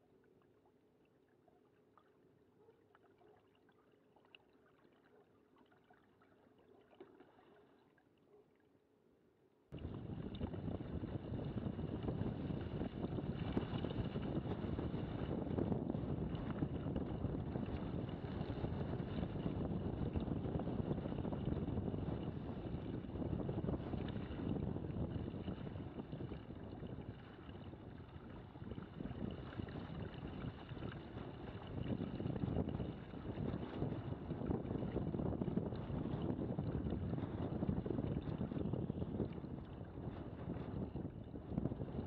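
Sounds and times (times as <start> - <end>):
water rushing along hulls: 0.0 - 8.6, 9.8 - 42.0
wind buffeting microphone: 9.8 - 42.0.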